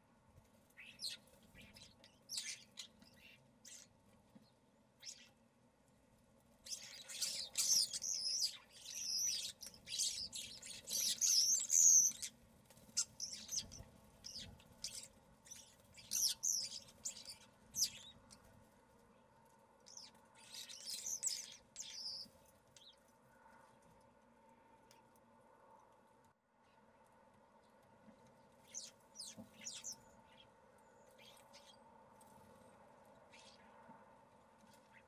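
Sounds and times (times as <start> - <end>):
faint steady hum: 0.0 - 35.0
starlings whistling and chattering: 6.7 - 12.3, 13.0 - 18.1, 19.9 - 22.3, 28.7 - 30.0.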